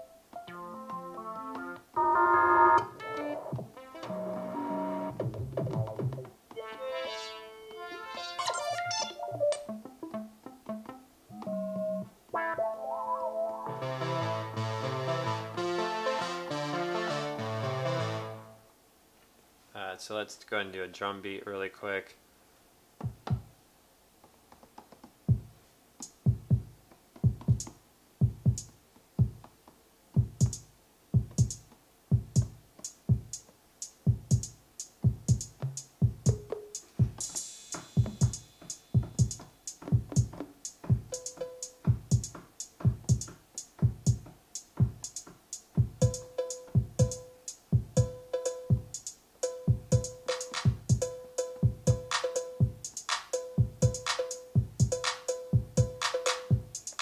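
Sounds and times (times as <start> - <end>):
drum machine kicks: 3.5 - 4.2, 5.1 - 6.4, 23.0 - 23.5, 25.2 - 29.6, 30.2 - 57.0
hi-hat ticks: 26.0 - 26.3, 28.4 - 28.8, 30.4 - 30.7, 31.3 - 57.0.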